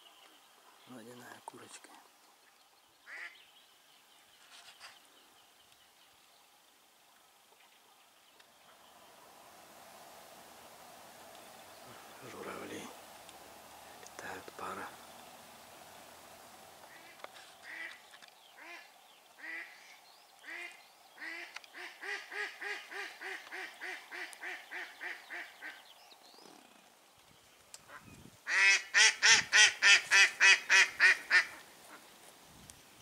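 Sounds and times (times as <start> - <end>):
duck call quacking: 28.5 - 31.6
duck quacking: 28.5 - 31.6.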